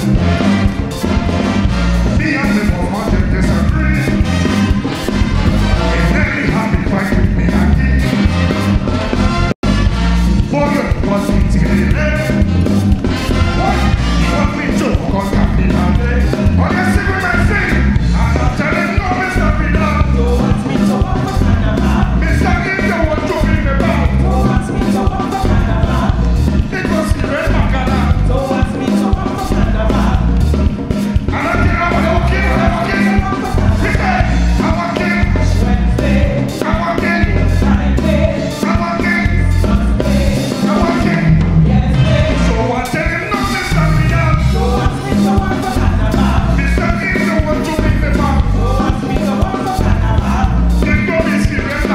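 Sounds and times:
horns: 0.0s - 51.9s
person singing: 5.0s - 8.3s, 13.1s - 51.9s.

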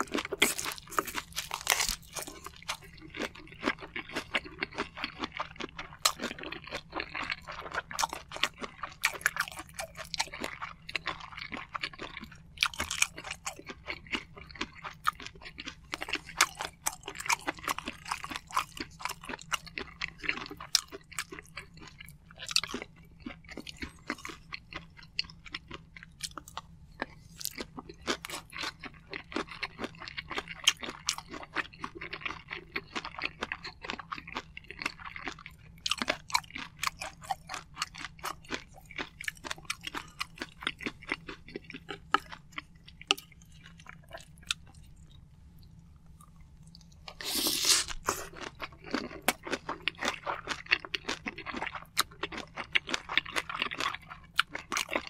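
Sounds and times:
close-miked chewing with mouth clicks: 0.0s - 55.0s.

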